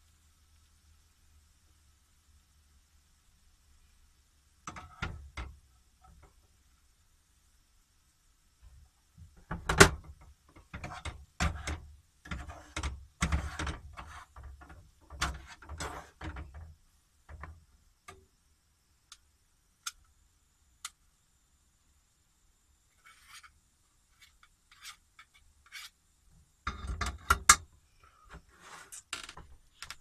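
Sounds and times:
utensils scraping and knocking pan: 9.4 - 16.6, 23.0 - 23.6, 24.2 - 26.0, 26.7 - 27.6.

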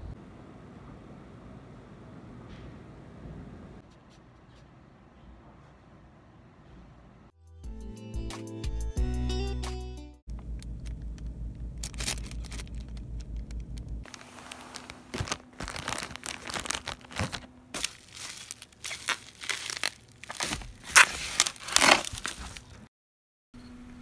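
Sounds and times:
plastic bags crinkling: 10.5 - 22.9.

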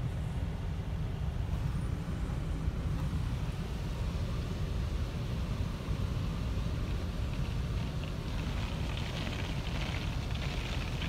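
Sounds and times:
water spray hissing on windshield: 6.2 - 11.0.

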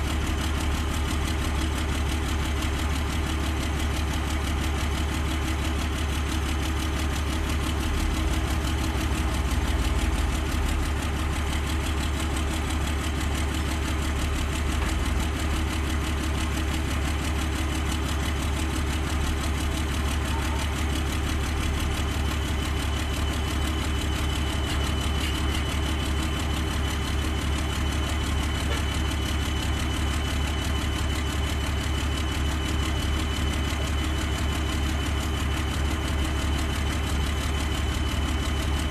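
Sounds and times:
diesel engine idling: 0.0 - 38.9.

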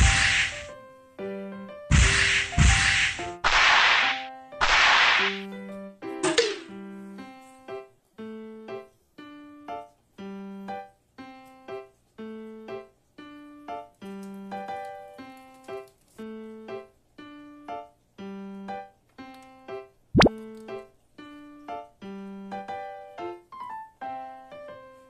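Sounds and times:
simple keyboard tune: 5.4 - 15.5.

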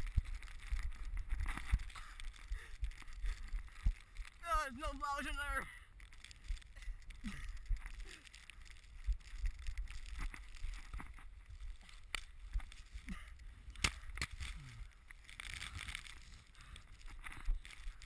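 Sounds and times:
wind rumbling on microphone: 0.0 - 4.9, 6.0 - 14.7.

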